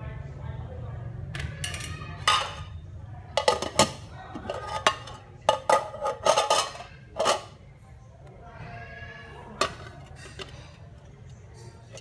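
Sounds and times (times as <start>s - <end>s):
utensils clinking on bowl: 1.6s - 2.8s, 3.4s - 7.6s, 9.6s - 12.0s.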